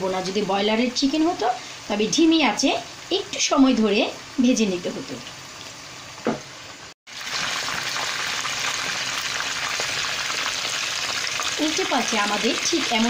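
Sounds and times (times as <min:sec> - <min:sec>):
chicken deep-frying in oil: 0:00.0 - 0:13.0.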